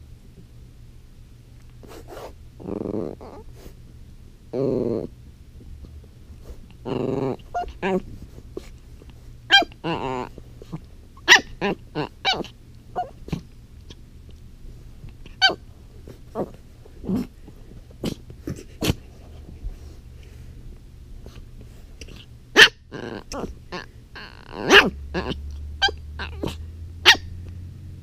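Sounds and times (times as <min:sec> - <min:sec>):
puppy growling: 0:02.6 - 0:03.6, 0:04.5 - 0:05.2, 0:06.8 - 0:08.7, 0:09.5 - 0:13.6, 0:16.3 - 0:17.4, 0:22.0 - 0:27.2
puppy barking and yipping: 0:07.5 - 0:08.0, 0:09.5 - 0:10.1, 0:11.2 - 0:13.4, 0:15.4 - 0:15.6, 0:22.6 - 0:27.4.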